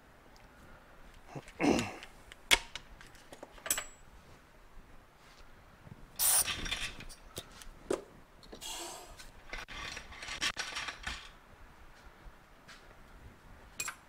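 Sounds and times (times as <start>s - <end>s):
metal parts clicking and clinking: 2.5s - 4.0s, 6.4s - 7.3s, 9.4s - 11.4s, 13.8s - 14.0s.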